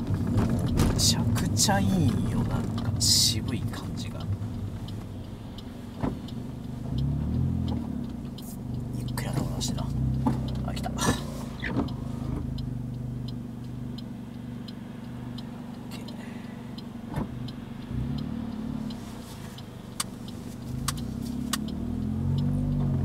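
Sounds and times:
car engine hum from cabin: 0:00.0 - 0:23.0
regular ticking clicks: 0:00.0 - 0:23.0.

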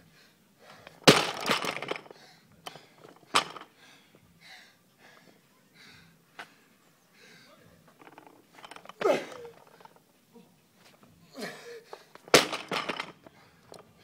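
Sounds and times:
barbell crashing onto rubber mat: 0:01.0 - 0:02.0, 0:12.2 - 0:13.2
plates rattling: 0:01.1 - 0:02.1, 0:03.0 - 0:03.7, 0:07.9 - 0:10.0, 0:12.2 - 0:13.3
hard breathing: 0:02.0 - 0:07.7, 0:11.3 - 0:12.2, 0:13.2 - 0:14.0.

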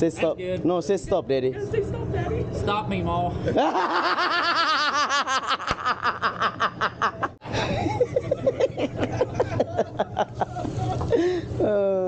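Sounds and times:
people laughing hard: 0:03.6 - 0:11.4.

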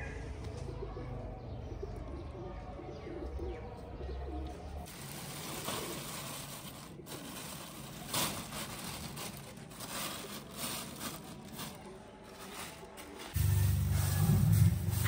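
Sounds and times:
plastic sheet crinkling: 0:04.8 - 0:13.5.

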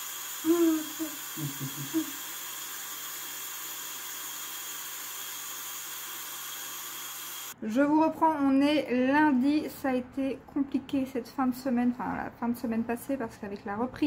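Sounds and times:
steady hiss: 0:00.0 - 0:02.6
person humming: 0:00.4 - 0:02.2.

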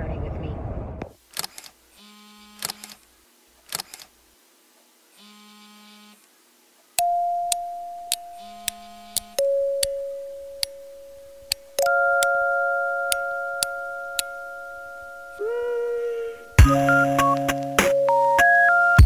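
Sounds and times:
camera shutter clicks: 0:01.3 - 0:03.0, 0:03.6 - 0:04.1
short low buzzing hums: 0:01.4 - 0:03.0, 0:05.1 - 0:06.3.

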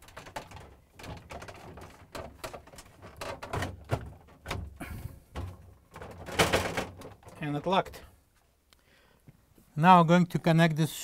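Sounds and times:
plastic knocks and clicks: 0:00.0 - 0:08.1.

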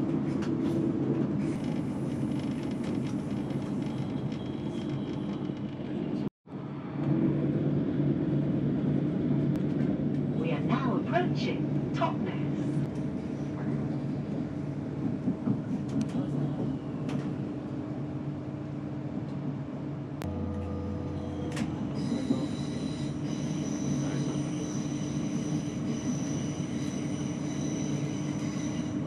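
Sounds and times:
train rumbling: 0:00.0 - 0:29.0
deeper hum: 0:20.2 - 0:22.4.

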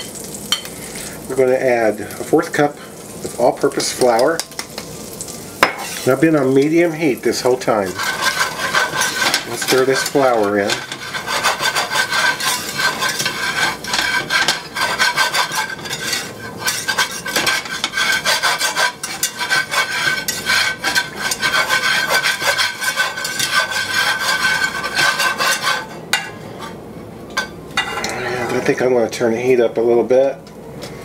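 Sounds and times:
wire whisk scraping a metal skillet: 0:05.6 - 0:26.8.

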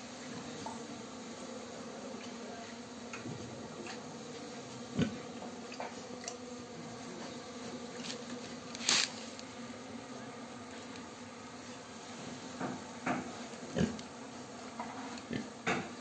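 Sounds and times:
honeybees buzzing: 0:00.0 - 0:16.0
short loud scrape: 0:08.8 - 0:09.3.

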